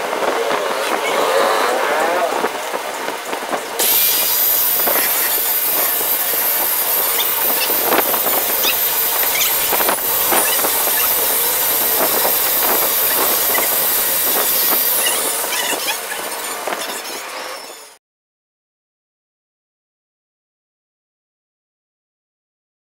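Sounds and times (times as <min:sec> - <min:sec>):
angle grinder sanding: 0:00.7 - 0:18.0.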